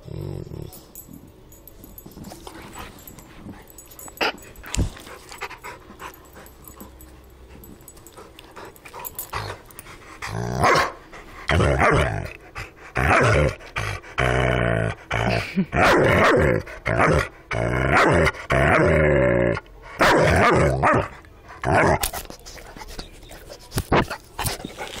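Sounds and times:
dog growling and barking: 0:00.0 - 0:01.0, 0:10.2 - 0:22.1
rustling and handling noise: 0:00.7 - 0:10.0, 0:22.0 - 0:25.0.

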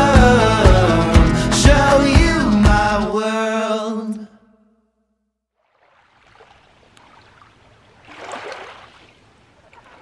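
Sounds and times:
water lapping on gravel shore: 0:05.6 - 0:10.0.

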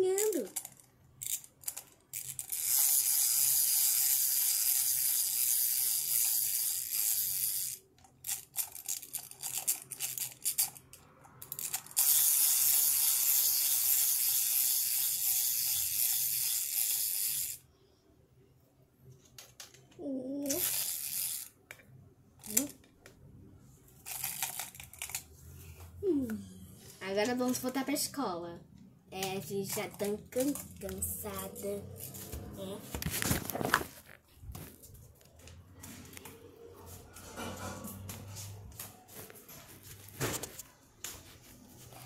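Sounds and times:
toys clicking and knocking: 0:00.0 - 0:17.6, 0:19.2 - 0:23.2, 0:24.0 - 0:25.3, 0:29.1 - 0:32.6
toy motor and gears whirring: 0:00.0 - 0:17.7, 0:20.0 - 0:21.6, 0:22.4 - 0:22.8, 0:24.0 - 0:25.3, 0:29.2 - 0:32.6.

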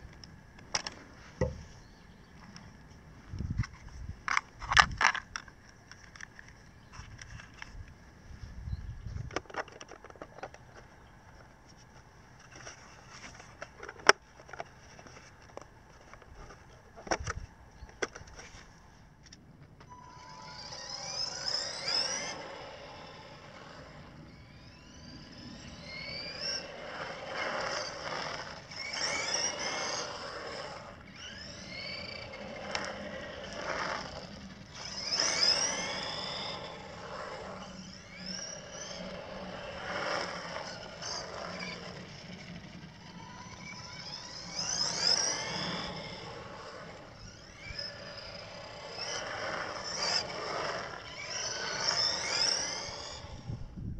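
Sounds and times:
electric motor and gears whining: 0:00.0 - 0:53.9.

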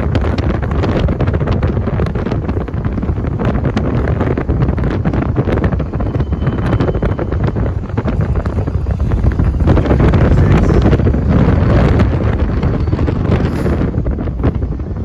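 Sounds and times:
diesel locomotive: 0:00.0 - 0:15.0
train wheels rumbling on rails: 0:00.0 - 0:15.0
wind buffeting microphone: 0:00.0 - 0:15.0.

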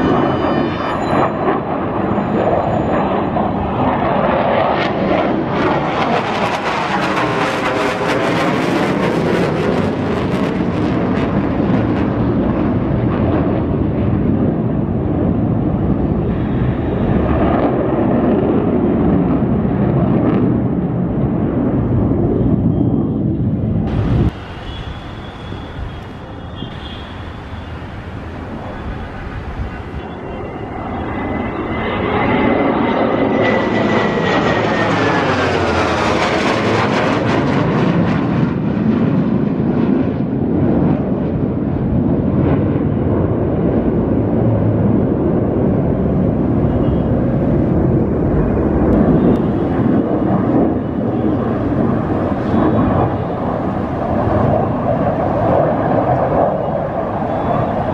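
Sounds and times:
jet whine falling in pitch: 0:00.0 - 0:10.8, 0:22.2 - 0:37.2, 0:46.0 - 0:57.9
fighter jet engines roaring: 0:00.0 - 0:57.9.

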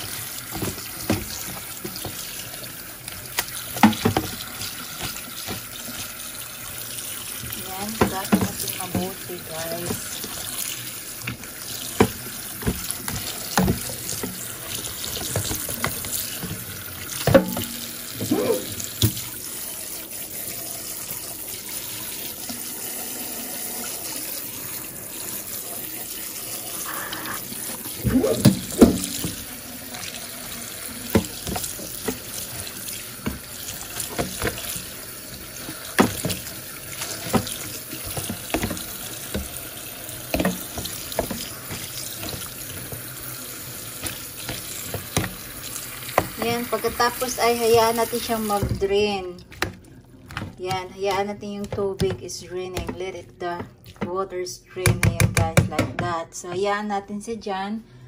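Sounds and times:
colander knocks and clatters: 0:00.0 - 0:02.2, 0:03.7 - 0:05.7, 0:07.8 - 0:09.2, 0:12.0 - 0:18.3, 0:35.6 - 0:39.6
tap water running into sink: 0:00.0 - 0:54.2.

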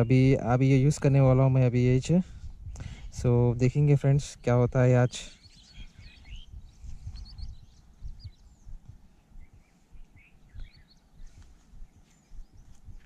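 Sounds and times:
wind and handling thumps on microphone: 0:00.0 - 0:04.7, 0:05.4 - 0:13.0
small birds chirping: 0:00.0 - 0:13.0.

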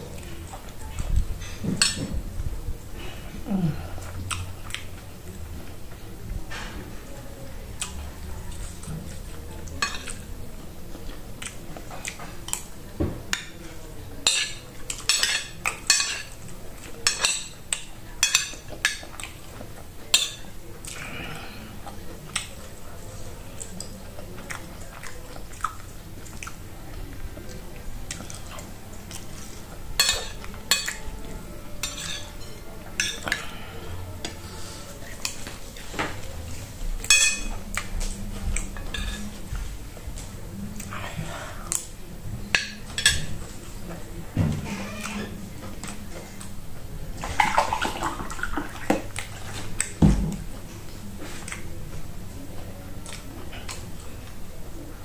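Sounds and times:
close-up chewing: 0:20.7 - 0:37.0
metal spoon clinking on ceramic plate: 0:37.1 - 0:37.5.

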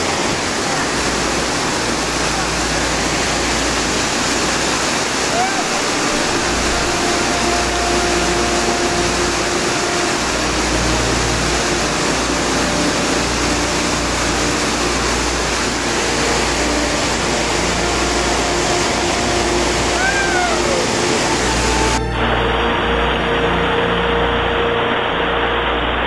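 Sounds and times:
whitewater rushing: 0:00.0 - 0:26.0
short wavering call: 0:17.2 - 0:25.4.

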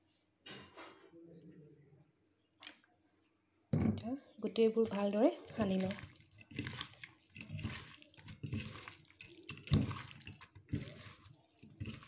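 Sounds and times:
hand squelching fish mixture: 0:04.6 - 0:12.0.

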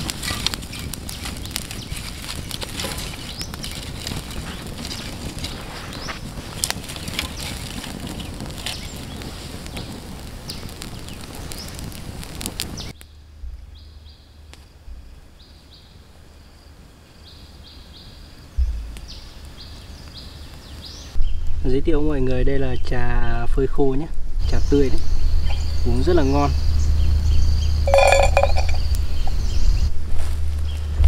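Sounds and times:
crackling with sharp clicks: 0:00.0 - 0:13.1
low thump: 0:13.3 - 0:14.1, 0:14.8 - 0:15.4, 0:18.6 - 0:19.4.

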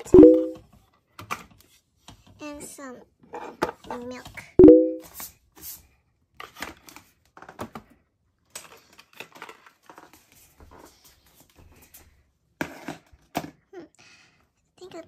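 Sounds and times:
toy groceries clicking and knocking: 0:03.2 - 0:04.5, 0:06.4 - 0:10.3, 0:12.6 - 0:13.7.

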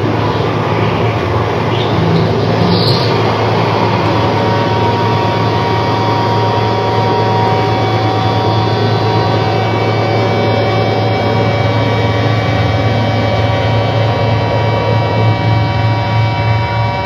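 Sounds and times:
electronic noise: 0:00.0 - 0:17.0
low hum: 0:00.0 - 0:17.0.

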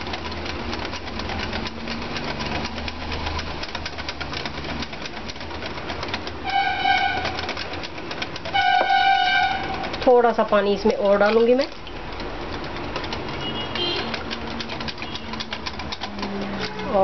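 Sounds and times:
whisk scraping glass bowl: 0:06.4 - 0:11.6
horn-like tone: 0:06.5 - 0:07.4, 0:08.6 - 0:09.9.

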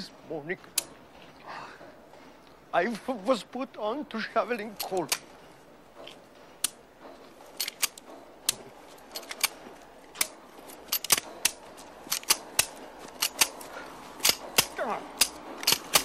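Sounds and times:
pistol action clicking: 0:10.2 - 0:16.0.

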